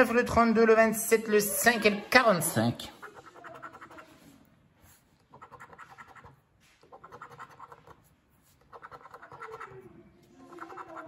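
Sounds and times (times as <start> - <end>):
coin scratching lottery ticket: 5.3 - 9.7.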